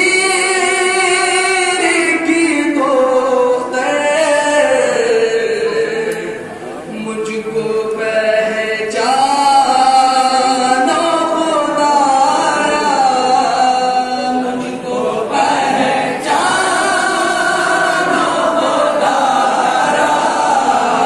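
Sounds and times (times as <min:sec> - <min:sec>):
man singing a mourning lament: 0:00.0 - 0:15.9
men singing in chorus: 0:07.4 - 0:21.0.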